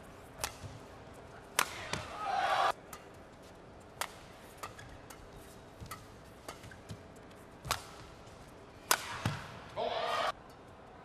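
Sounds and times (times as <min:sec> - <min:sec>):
racket striking shuttlecock: 0:00.3 - 0:03.2, 0:03.9 - 0:09.7.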